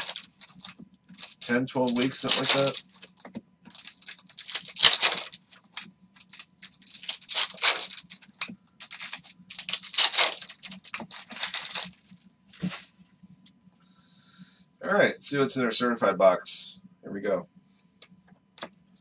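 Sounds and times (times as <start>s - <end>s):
foil wrappers tearing and crinkling: 0.0s - 12.1s
cards shuffled in hand: 0.0s - 12.9s.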